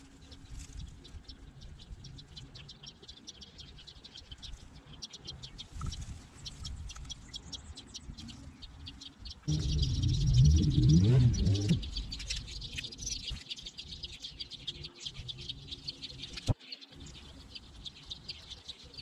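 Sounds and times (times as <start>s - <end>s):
sparrows chirping: 0.0s - 19.0s
sudden loud low noise: 9.5s - 12.4s.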